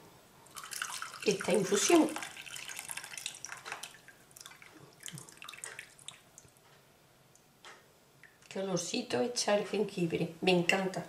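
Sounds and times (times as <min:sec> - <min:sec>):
liquid trickling into cup: 0:00.5 - 0:06.5.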